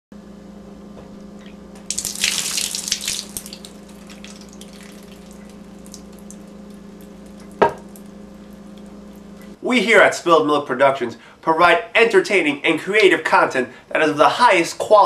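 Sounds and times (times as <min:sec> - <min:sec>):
steady hum: 0:00.2 - 0:15.0
liquid dripping: 0:01.4 - 0:09.6.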